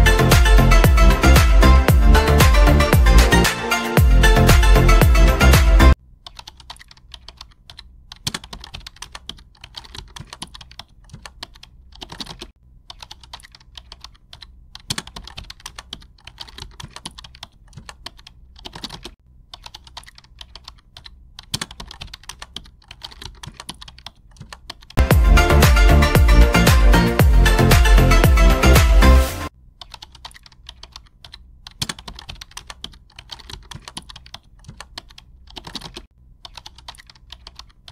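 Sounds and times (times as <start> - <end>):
music: 0.0 - 6.0, 25.0 - 29.5.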